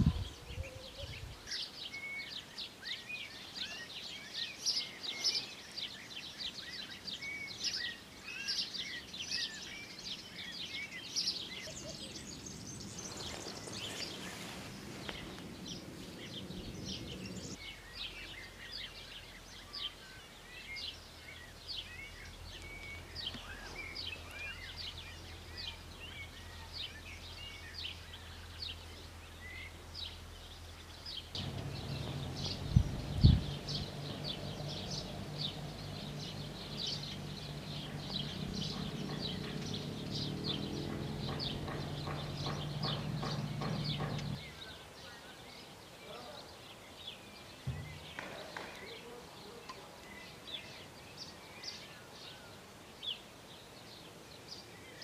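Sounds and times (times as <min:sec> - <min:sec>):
small birds chirping: 0:00.0 - 0:55.0
soft rushing noise: 0:12.5 - 0:17.6, 0:31.4 - 0:41.5.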